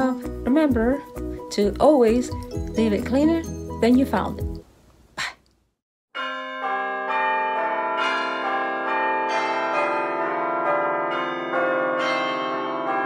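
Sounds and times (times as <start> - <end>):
bell-like chimes ringing: 6.2 - 13.0.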